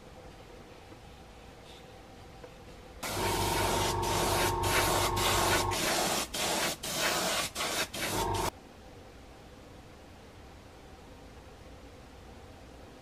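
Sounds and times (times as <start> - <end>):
spray paint hissing: 3.0 - 8.5.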